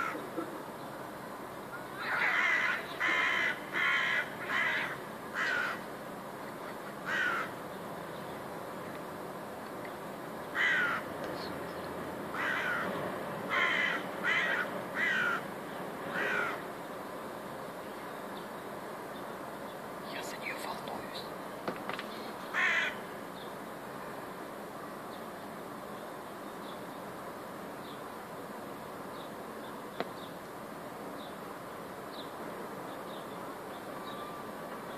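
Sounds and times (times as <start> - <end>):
crow cawing harshly: 0.0 - 0.3, 2.0 - 5.9, 7.0 - 7.6, 10.5 - 11.1, 12.3 - 15.5, 16.1 - 16.7, 22.5 - 23.1.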